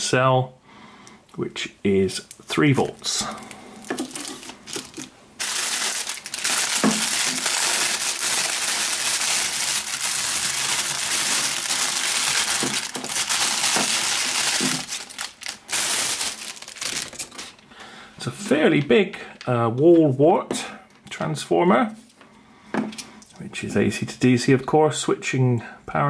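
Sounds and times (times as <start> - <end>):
plastic bag crinkling: 2.2 - 17.7.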